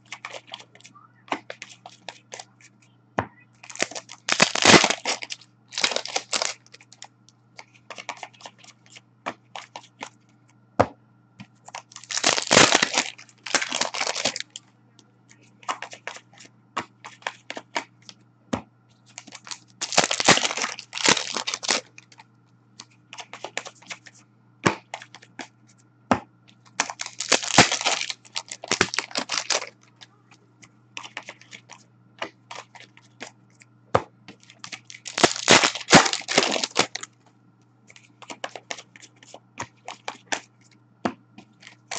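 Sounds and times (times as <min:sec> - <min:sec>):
cards clicking and rustling: 0:00.0 - 0:02.8, 0:03.6 - 0:10.2, 0:11.4 - 0:14.6, 0:15.3 - 0:18.2, 0:19.1 - 0:25.5, 0:26.6 - 0:33.4, 0:34.3 - 0:37.1, 0:37.9 - 0:40.5, 0:41.4 - 0:41.9
faint steady hum: 0:00.0 - 0:41.9
foil card packs tearing open: 0:03.6 - 0:06.8, 0:11.8 - 0:14.6, 0:19.2 - 0:22.1, 0:26.8 - 0:29.7, 0:34.4 - 0:37.1.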